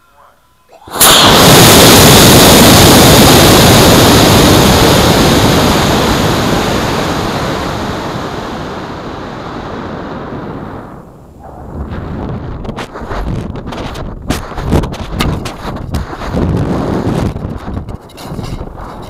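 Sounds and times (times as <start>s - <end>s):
air rushing over camera: 0.9s - 19.0s.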